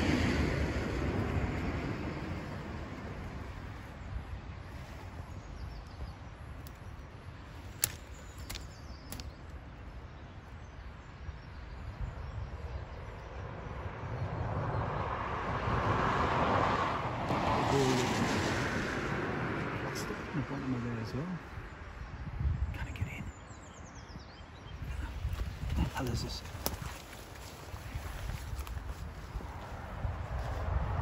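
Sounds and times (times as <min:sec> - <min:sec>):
wind rumbling on microphone: 0:00.0 - 0:31.0
sharp clicks: 0:07.6 - 0:09.6.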